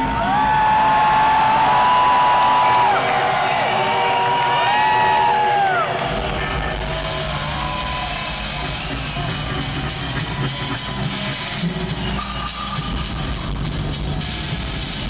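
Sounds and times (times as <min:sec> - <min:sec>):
crowd whooping and whistling: 0:00.0 - 0:14.4
drum solo: 0:06.3 - 0:15.0.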